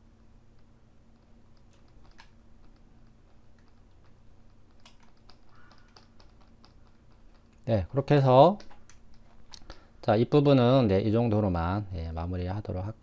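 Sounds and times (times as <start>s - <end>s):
low steady hum: 0.0s - 13.0s
computer keyboard clicking: 1.2s - 7.7s, 8.4s - 9.8s.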